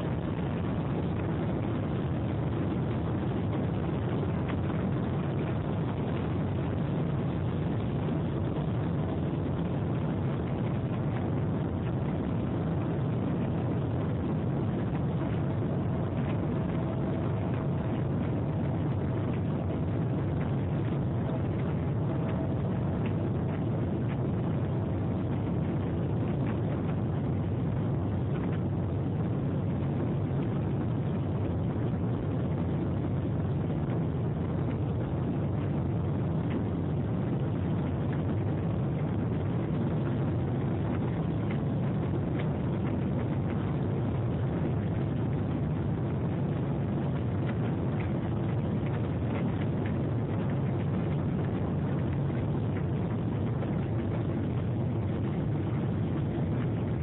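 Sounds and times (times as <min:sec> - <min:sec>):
jet engines roaring: 0:00.0 - 0:31.8
faint steady hum: 0:00.0 - 0:57.0.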